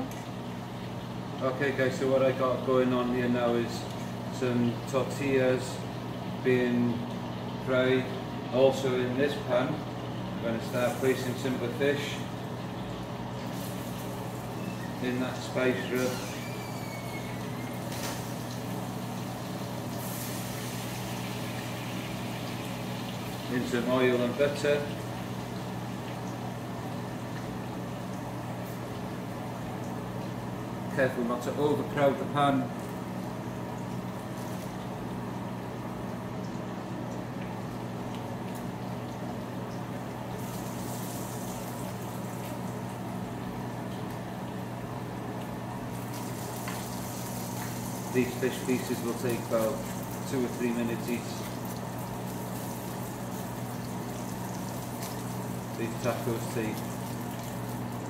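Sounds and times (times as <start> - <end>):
fish frying in pan: 0.0 - 58.0
low mechanical hum: 0.0 - 58.0
oil hissing: 13.4 - 25.5
food sizzling in a pan: 15.9 - 23.6, 40.4 - 42.7, 45.9 - 50.4, 51.0 - 57.9.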